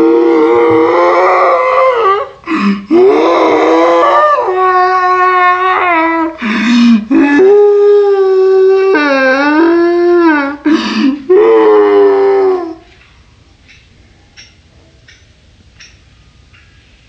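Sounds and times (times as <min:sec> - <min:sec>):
gasping breaths: 0:01.9 - 0:03.1, 0:06.3 - 0:07.3, 0:10.6 - 0:11.3.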